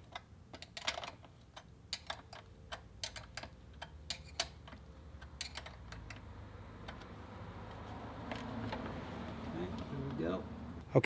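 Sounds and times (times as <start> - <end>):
hand ratchet clicking: 0.1 - 6.2.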